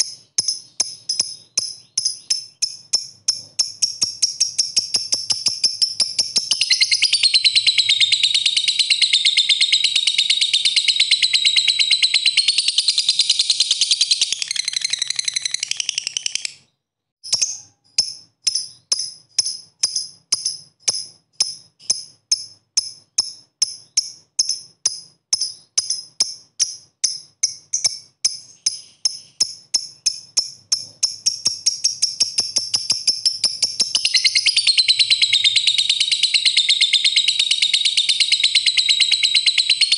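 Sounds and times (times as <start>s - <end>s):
lovebird chattering trill: 0.0s - 16.7s, 25.4s - 39.9s
sharp ticking bird chirps: 0.0s - 39.9s.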